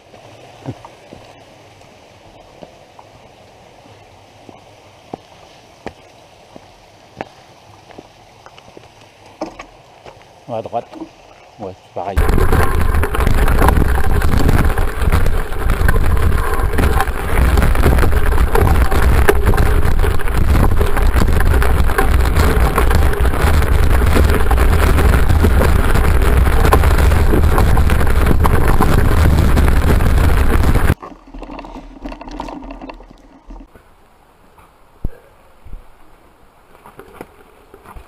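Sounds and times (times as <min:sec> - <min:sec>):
wind rumble on microphone: 0:12.2 - 0:31.0
bike rattling and clattering: 0:12.2 - 0:31.1.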